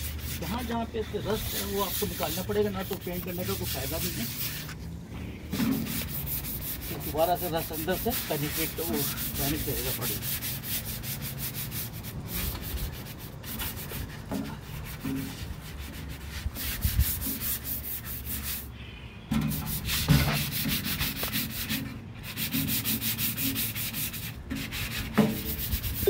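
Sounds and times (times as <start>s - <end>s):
sanding block scraping metal: 0.0s - 4.8s, 5.5s - 18.7s, 19.4s - 26.0s.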